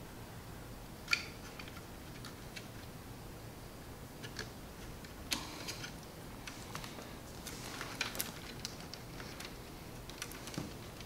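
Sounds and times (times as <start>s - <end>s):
cable rustling: 4.2s - 11.0s.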